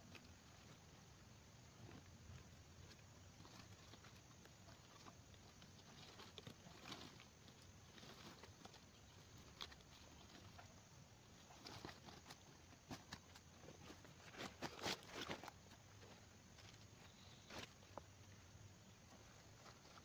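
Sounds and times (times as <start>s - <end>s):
footstep crunching leaves: 11.3s - 18.4s.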